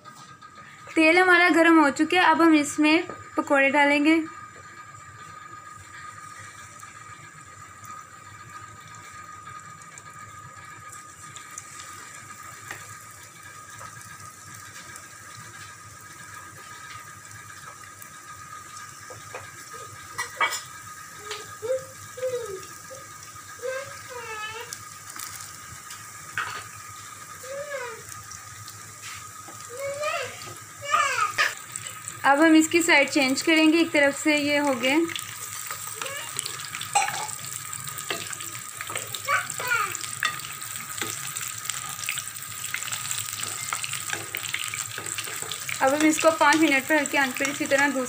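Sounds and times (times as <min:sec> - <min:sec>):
batter sizzling in hot oil: 0:00.0 - 0:48.0
spoon scraping on pan: 0:43.4 - 0:47.9.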